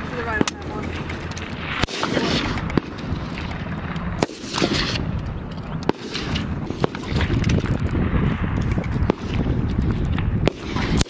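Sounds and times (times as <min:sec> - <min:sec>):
gunshots: 0:00.0 - 0:05.1, 0:05.8 - 0:08.2, 0:08.9 - 0:11.0
steady background rush: 0:00.0 - 0:11.0.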